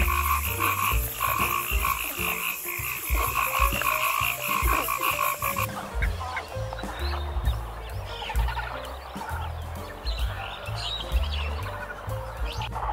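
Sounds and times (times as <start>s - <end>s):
frogs croaking: 0.0s - 6.5s.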